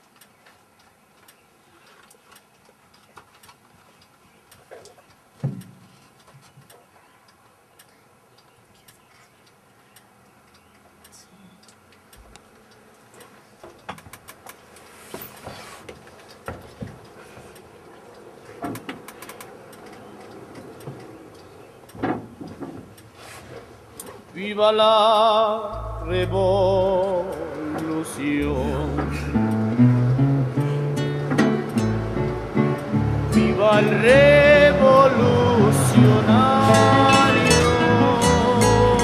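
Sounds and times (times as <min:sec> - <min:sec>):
bus interior rattles: 0:13.6 - 0:39.0.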